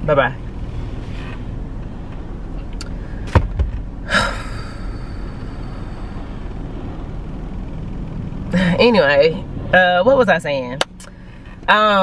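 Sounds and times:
low rumble of car cabin: 0.0s - 12.0s
person exhaling: 4.0s - 6.4s.

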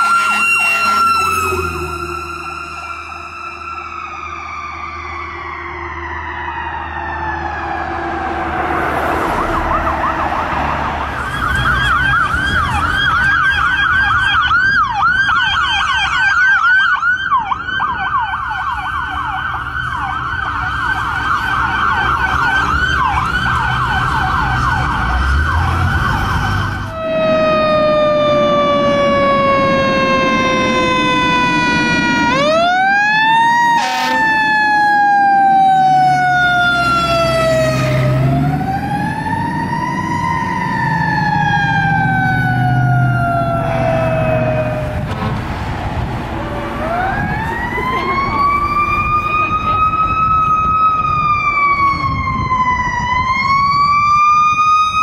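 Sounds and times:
electronic siren yelping: 0.0s - 45.1s, 46.4s - 55.0s
truck engine rumbling: 0.0s - 55.0s.

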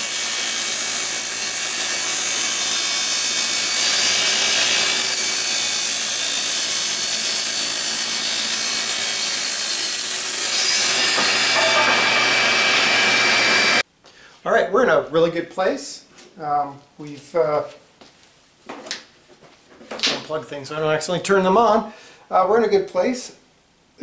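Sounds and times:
table saw cutting wood: 0.0s - 13.8s.

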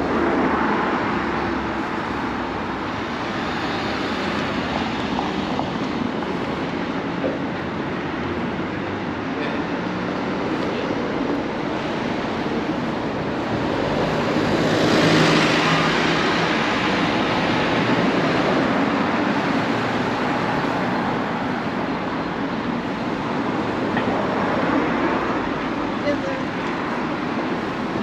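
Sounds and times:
road noise from passing cars: 0.0s - 28.0s
vehicle passing close by: 13.6s - 21.1s.

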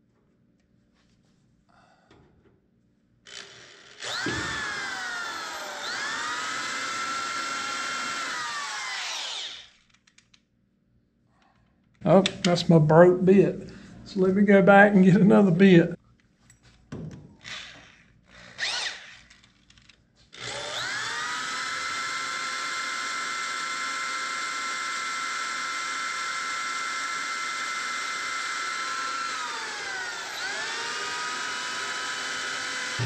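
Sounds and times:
electric drill whining: 3.3s - 10.2s, 17.4s - 33.0s.

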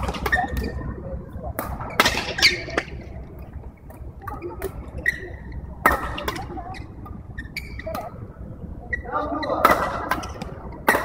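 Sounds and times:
rackets hitting shuttlecock: 0.0s - 0.8s, 1.6s - 3.0s, 5.8s - 6.6s, 9.6s - 11.0s
shoes squeaking on court: 4.3s - 8.2s.

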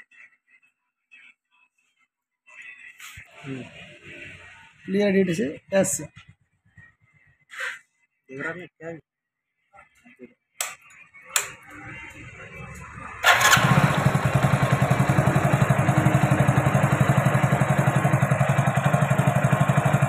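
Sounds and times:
motorcycle engine starting and idling: 11.4s - 20.0s.

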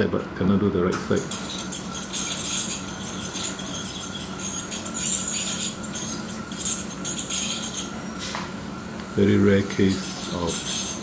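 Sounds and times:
low equipment hum: 0.0s - 11.0s
dental scaler hissing: 1.0s - 8.4s, 9.2s - 11.0s.

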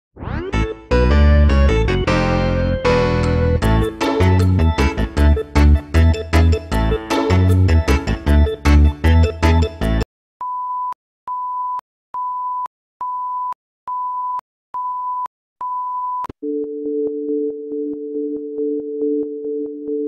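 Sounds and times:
music: 0.3s - 10.0s.

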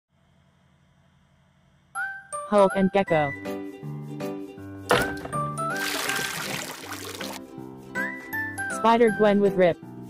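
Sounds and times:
light background music: 2.0s - 10.0s
water splashing: 4.9s - 7.4s.

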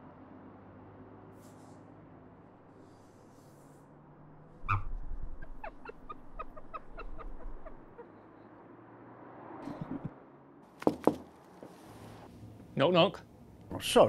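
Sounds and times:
person laughing: 5.4s - 8.2s, 9.6s - 10.2s.

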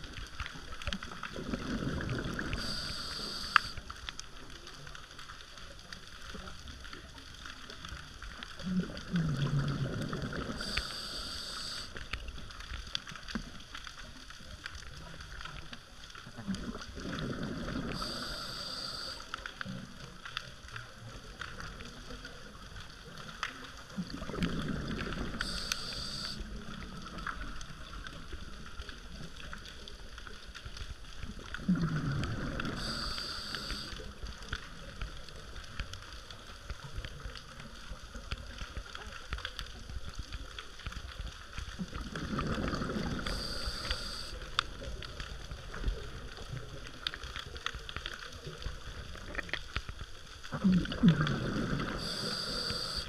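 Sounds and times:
exhaled bubbles rumbling: 0.0s - 53.0s
faint steady crackle: 0.0s - 53.0s
diver inhaling through regulator: 1.7s - 3.8s, 10.4s - 12.0s, 17.4s - 19.3s, 24.5s - 26.5s, 31.8s - 34.1s, 42.6s - 44.5s, 51.2s - 53.0s.

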